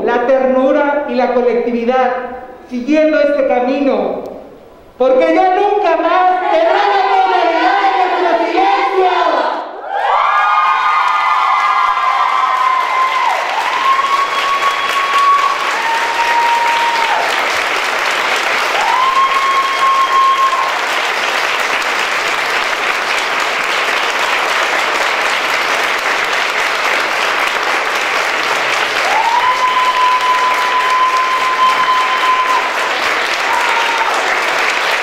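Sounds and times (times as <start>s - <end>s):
crowd applauding: 9.9s - 35.0s
shrill held tone: 12.8s - 17.2s, 18.8s - 20.8s, 29.1s - 32.8s.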